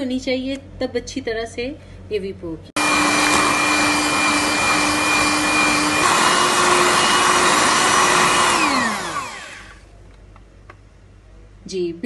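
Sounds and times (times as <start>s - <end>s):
electric hand mixer whine: 2.8s - 9.8s.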